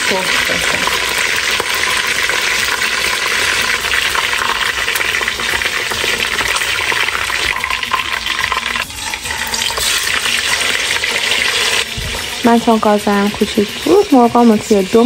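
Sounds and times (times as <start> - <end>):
chicken sizzling in hot oil: 0.0 - 15.0.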